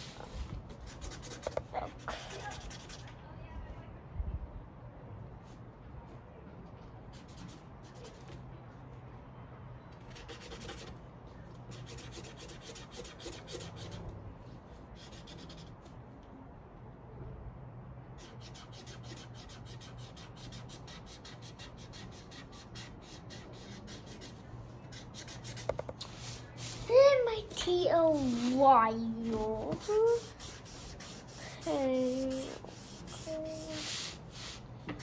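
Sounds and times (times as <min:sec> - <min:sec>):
marker scribbling on paper: 0:00.0 - 0:03.2, 0:07.1 - 0:08.4, 0:10.1 - 0:11.0, 0:11.7 - 0:14.1, 0:14.8 - 0:15.9, 0:18.2 - 0:27.1, 0:27.9 - 0:34.6.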